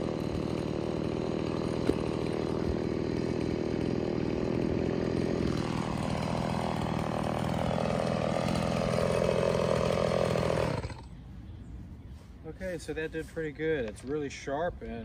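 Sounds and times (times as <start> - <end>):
chainsaw engine idling: 0.0 - 11.2.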